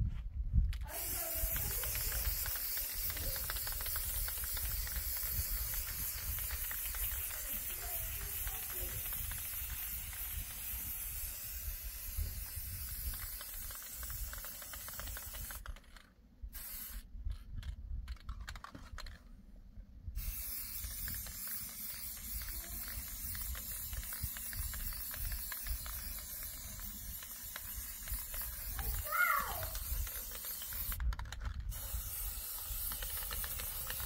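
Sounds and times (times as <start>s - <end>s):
wind rumble on microphone: 0.0s - 2.2s
paintbrush scrubbing rough wall: 0.9s - 15.7s, 20.2s - 31.0s.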